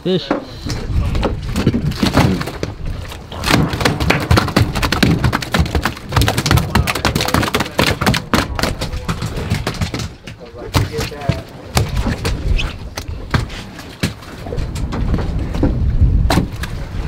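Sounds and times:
fish thudding on a deck: 1.2s - 14.3s.

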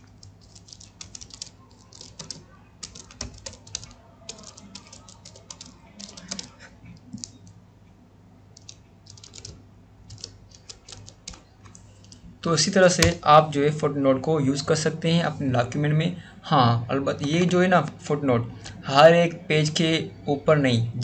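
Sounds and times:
typing on computer keyboard: 0.0s - 7.6s, 8.6s - 12.2s.

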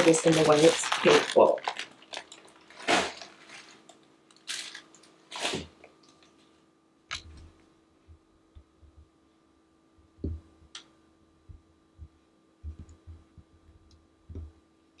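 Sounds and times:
plastic bag rustling: 0.0s - 6.4s.

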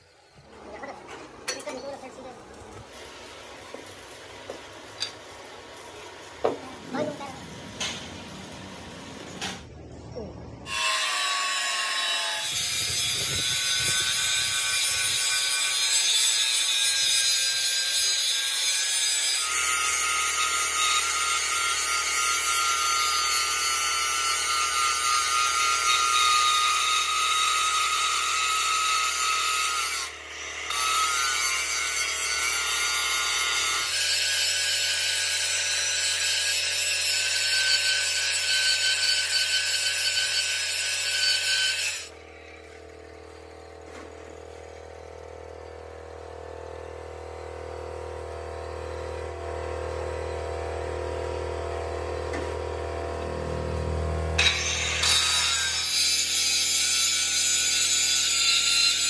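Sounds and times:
power tool whining on metal: 10.6s - 59.0s.

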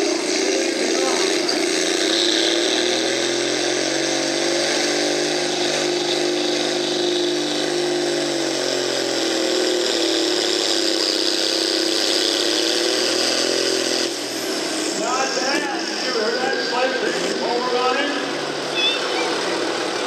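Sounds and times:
tractor diesel engine under load: 0.0s - 20.0s.

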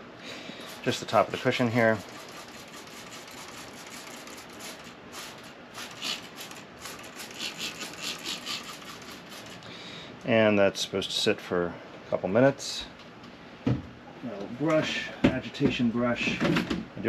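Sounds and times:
spray bottle hissing squirts: 2.2s - 9.6s.

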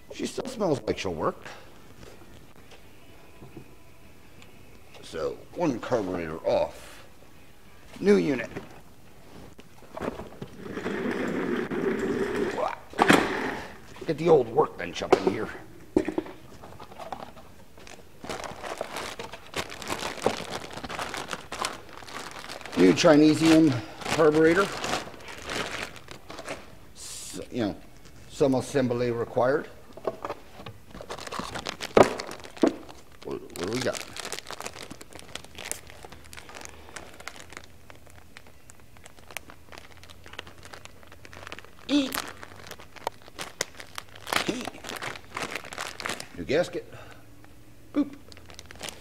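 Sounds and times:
plastic bag crinkling: 16.6s - 26.8s, 30.9s - 46.8s, 48.3s - 49.0s.

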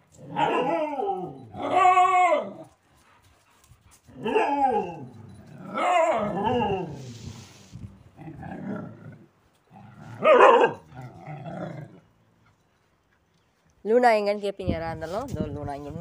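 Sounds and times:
dogs barking and growling: 0.0s - 2.8s, 3.9s - 12.6s.

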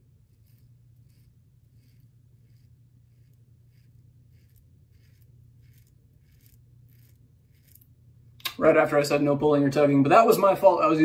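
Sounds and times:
razor scraping stubble: 0.0s - 8.6s
low steady hum: 0.0s - 11.0s.

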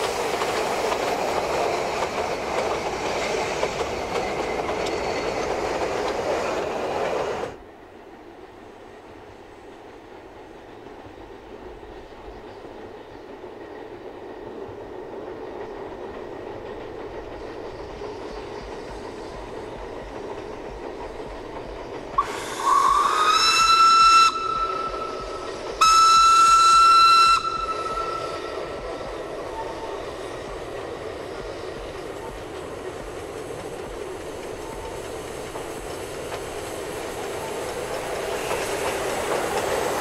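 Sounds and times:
steam train running: 0.0s - 40.0s
steam whistle blasts: 22.2s - 28.9s.

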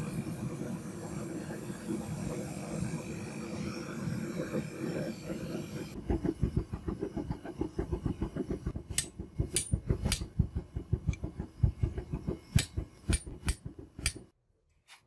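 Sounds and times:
gas forge burner roaring: 0.0s - 14.4s
rapid low pulsing: 5.9s - 14.3s.

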